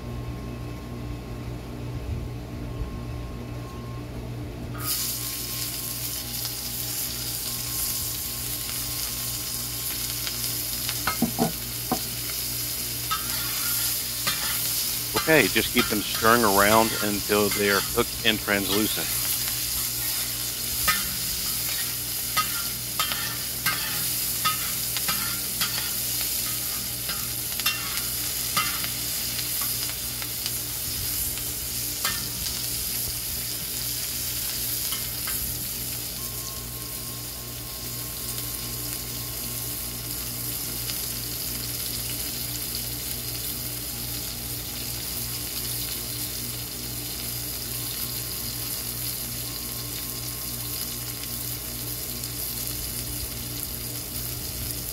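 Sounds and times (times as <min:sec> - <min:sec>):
onions sizzling: 0:04.8 - 0:54.9
metal spatula scraping and tapping: 0:13.1 - 0:18.9, 0:20.1 - 0:28.9.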